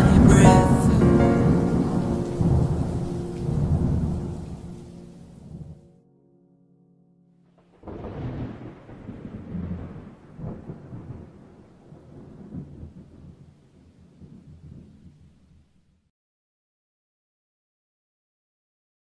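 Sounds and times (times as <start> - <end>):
rain hiss: 0.0 - 5.8
thunder rolling: 0.0 - 5.8, 7.6 - 15.2.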